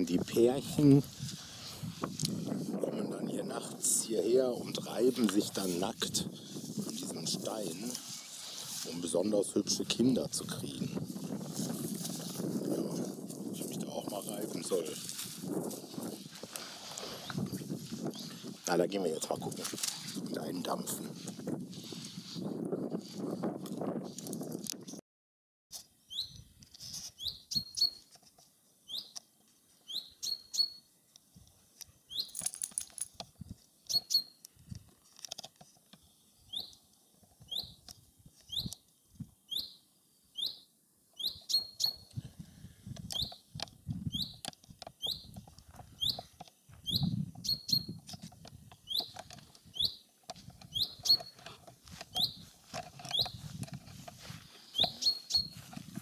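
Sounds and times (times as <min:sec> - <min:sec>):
bird chirping: 0:26.0 - 0:26.5, 0:27.2 - 0:28.1, 0:28.8 - 0:29.2, 0:29.8 - 0:30.9, 0:32.1 - 0:32.4, 0:33.9 - 0:34.4, 0:36.4 - 0:36.8, 0:37.4 - 0:38.8, 0:39.5 - 0:42.1, 0:43.1 - 0:43.5, 0:44.1 - 0:44.4, 0:45.0 - 0:48.0, 0:48.8 - 0:51.5, 0:52.1 - 0:52.4, 0:53.0 - 0:53.4, 0:54.7 - 0:55.6.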